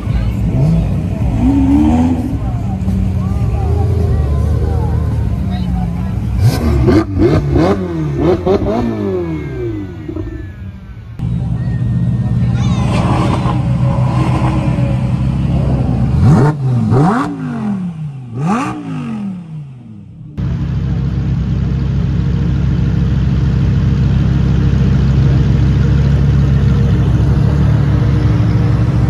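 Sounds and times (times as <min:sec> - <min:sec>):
car engine revving: 0:00.0 - 0:29.0
cars driving slowly: 0:00.0 - 0:29.0.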